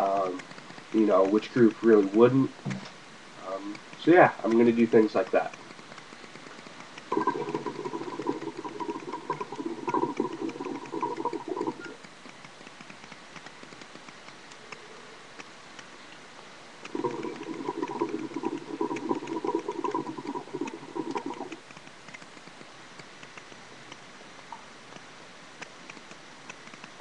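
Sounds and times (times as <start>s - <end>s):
hookah water bubbling: 3.7s - 12.1s, 16.8s - 21.8s.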